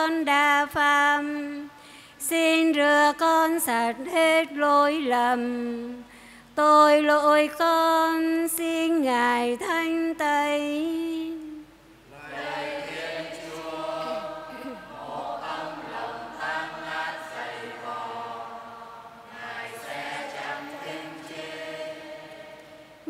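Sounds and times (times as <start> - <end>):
choir singing softly: 12.0 - 23.0.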